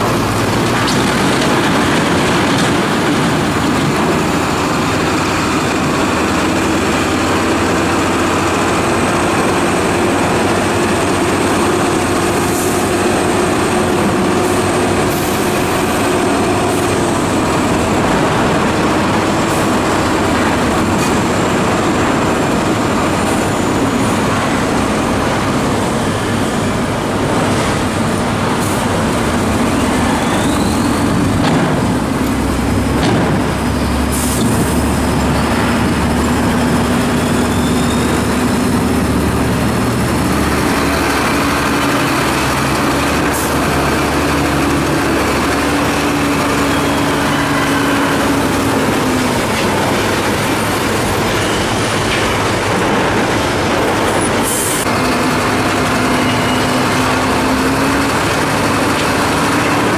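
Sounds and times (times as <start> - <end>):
diesel truck engines running: 0.0 - 59.9
sharp metal knocks and clanks: 31.3 - 33.8.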